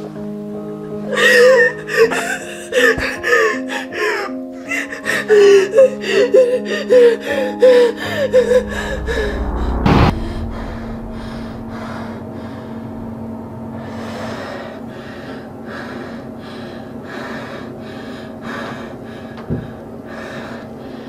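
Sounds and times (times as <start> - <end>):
woman sobbing: 1.1 - 9.6
low steady hum: 8.0 - 16.9.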